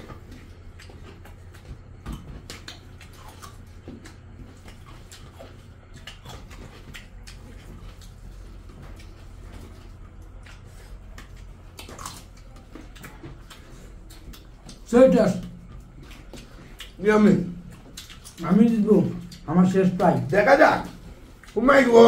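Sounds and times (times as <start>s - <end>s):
mouths chewing: 0.0s - 22.0s
steady low hum: 0.0s - 22.0s.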